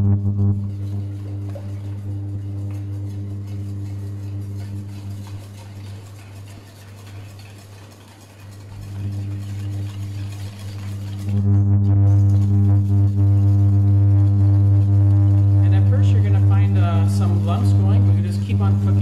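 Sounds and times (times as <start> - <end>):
low hum: 0.0 - 6.8, 8.4 - 19.0
whisk stirring in metal bowl: 0.6 - 11.4, 15.6 - 19.0.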